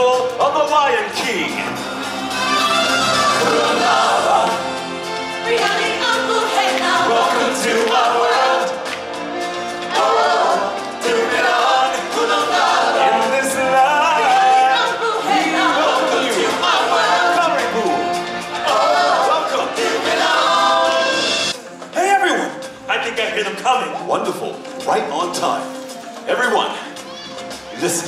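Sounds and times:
backing music: 0.0s - 28.0s
choir singing: 1.3s - 21.6s.

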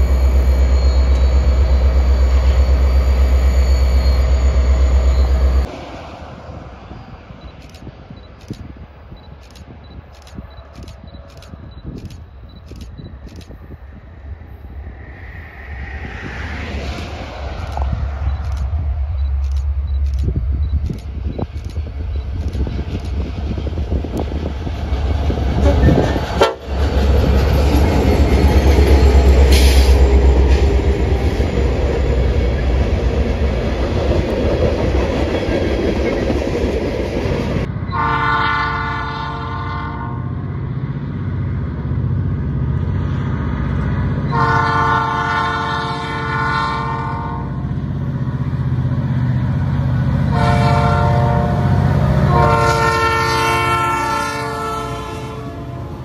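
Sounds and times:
diesel locomotive engine rumble: 0.0s - 56.0s
tank cars on rails: 7.0s - 13.8s, 16.6s - 37.7s
train air horn blasts: 26.4s - 26.6s, 37.9s - 40.4s, 44.3s - 47.6s, 50.3s - 56.0s.

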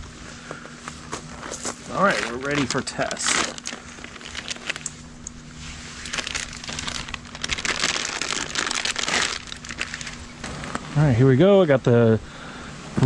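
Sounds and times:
plastic bag crinkling: 1.4s - 5.1s, 5.9s - 11.0s.

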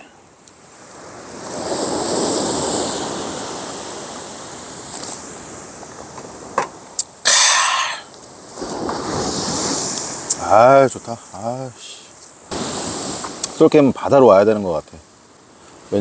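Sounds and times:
waves breaking on a beach: 0.0s - 16.0s
loud breathy burst: 7.2s - 8.1s.

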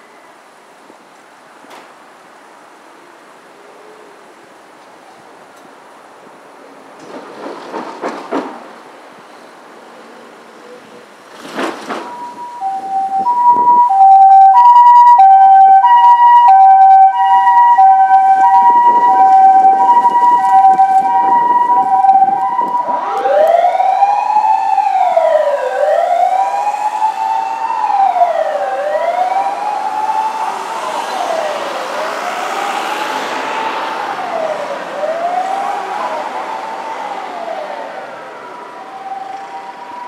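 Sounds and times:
two-tone ambulance siren: 12.0s - 40.0s
wailing siren: 12.0s - 40.0s.

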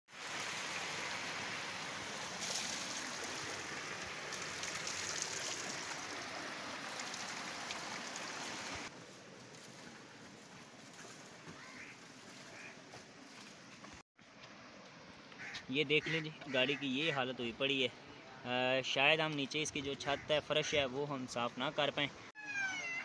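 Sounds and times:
water rushing in a channel: 0.1s - 8.9s.

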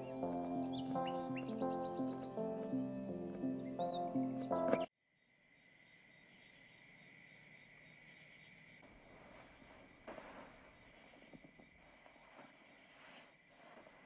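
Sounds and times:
soft rustle: 8.8s - 14.0s.

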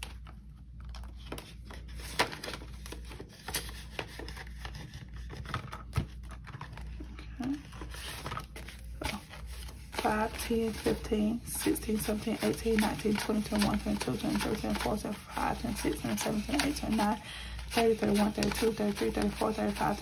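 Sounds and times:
paper money rustling: 7.6s - 20.0s.

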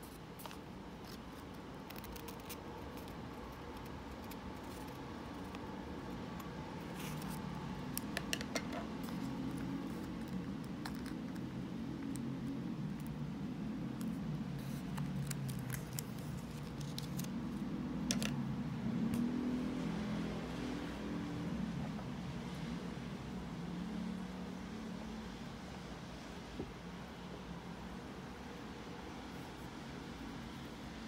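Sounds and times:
paper rustling and creasing: 0.0s - 12.2s, 14.0s - 18.3s
scissors snipping paper: 0.4s - 13.2s, 13.9s - 17.3s.

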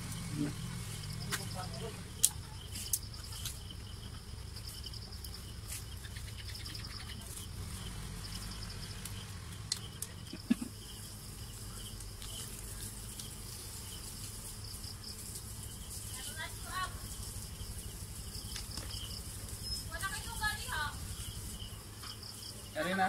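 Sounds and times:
insects chirping in pulses: 0.0s - 23.0s
sharp clicks: 9.0s - 10.2s.

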